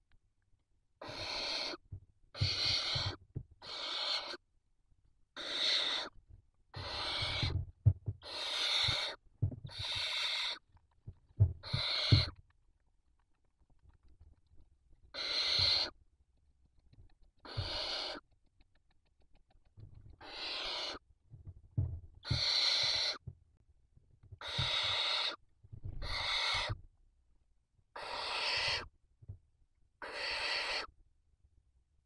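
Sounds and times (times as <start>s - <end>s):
owl chicks hissing calls: 1.0s - 1.8s, 2.4s - 4.4s, 5.4s - 6.1s, 6.8s - 7.6s, 8.2s - 10.6s, 11.6s - 12.4s, 15.1s - 16.0s, 17.4s - 18.2s, 20.2s - 21.0s, 22.2s - 23.2s, 24.4s - 25.4s, 26.0s - 26.8s, 28.0s - 28.9s, 30.0s - 30.9s.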